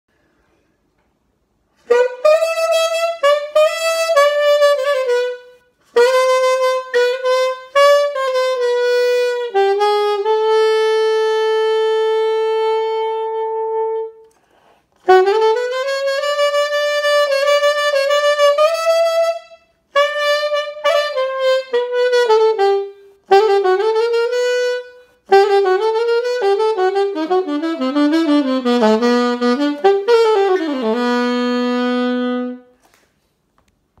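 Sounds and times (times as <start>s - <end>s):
solo saxophone melody: 1.7s - 32.9s
player taking breaths: 14.3s - 15.0s.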